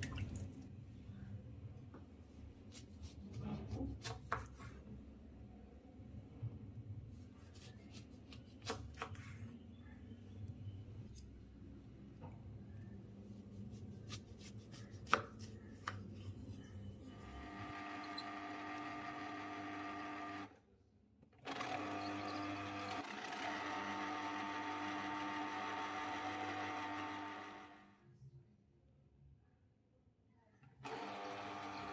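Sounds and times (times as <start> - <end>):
electric juicer motor humming: 17.2 - 20.5, 21.4 - 27.8, 30.8 - 31.9.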